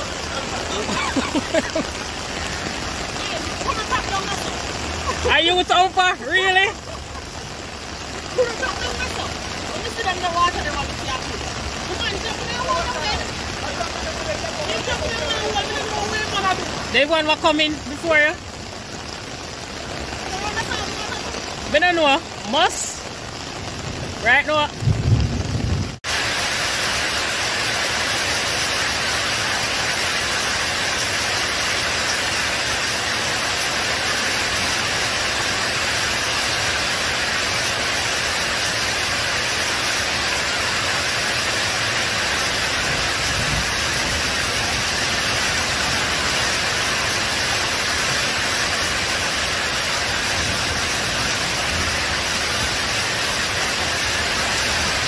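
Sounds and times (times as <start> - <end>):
heavy rainfall: 0.0 - 55.0
running floodwater: 0.0 - 55.0.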